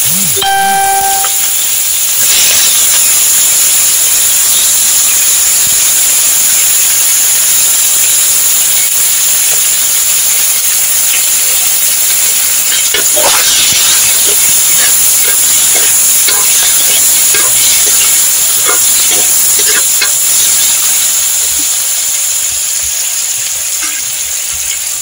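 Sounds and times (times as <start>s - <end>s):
food sizzling in a hot pan: 0.0s - 25.0s
utensil stirring and clattering: 11.8s - 21.2s.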